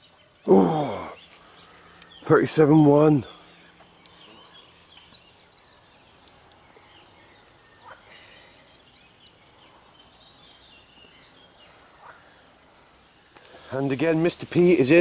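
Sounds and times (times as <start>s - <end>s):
chirping and trilling animal calls: 3.1s - 13.7s.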